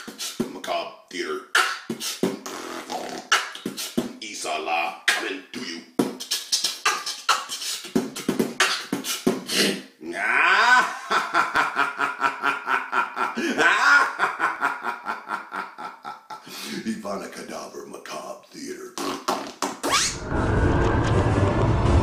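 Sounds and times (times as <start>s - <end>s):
man beatboxing: 0.0s - 10.4s, 18.6s - 19.9s.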